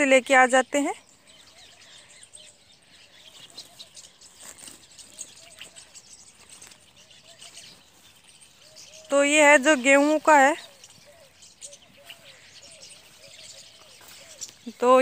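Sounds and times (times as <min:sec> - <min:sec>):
birds calling faintly: 0:00.0 - 0:15.0.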